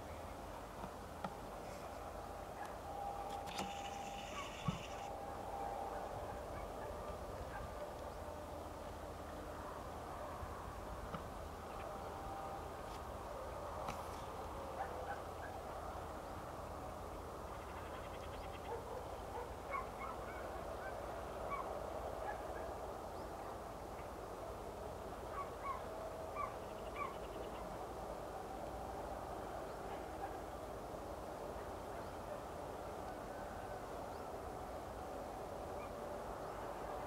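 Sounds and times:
flock of waterbirds calling: 0:03.6 - 0:05.1
single short bird calls: 0:03.6 - 0:05.1.

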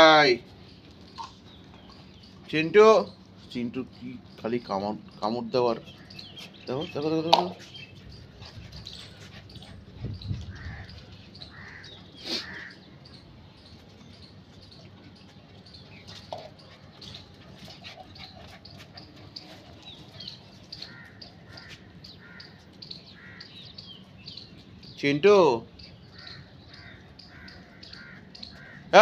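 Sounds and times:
small birds chirping: 0:00.0 - 0:29.0
crows cawing: 0:10.5 - 0:12.9, 0:20.7 - 0:23.9, 0:26.0 - 0:29.0.

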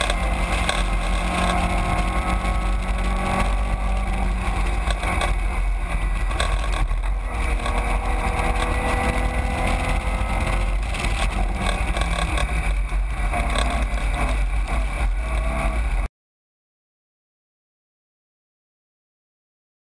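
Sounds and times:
wind buffeting microphone: 0:00.0 - 0:15.8
race car engine: 0:00.0 - 0:16.1.

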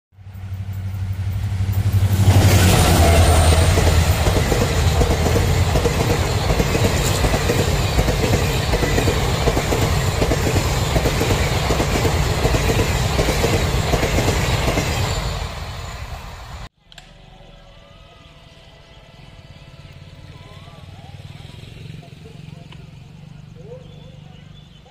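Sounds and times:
train wheels clickety-clack: 0:00.2 - 0:16.2
diesel locomotive engine drone: 0:00.2 - 0:24.9
coaches rattling past: 0:00.3 - 0:16.5.

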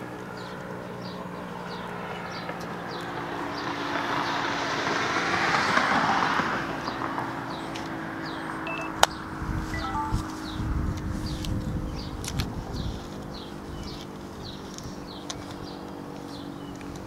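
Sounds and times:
car passing by: 0:01.7 - 0:08.6
birds chirping: 0:06.8 - 0:12.2.

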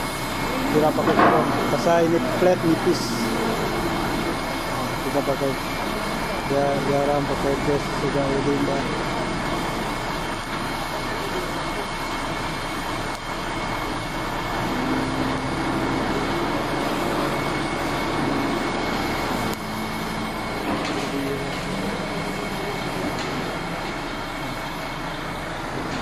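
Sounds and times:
welding torch hissing: 0:00.0 - 0:25.8
engine droning: 0:00.0 - 0:26.0.

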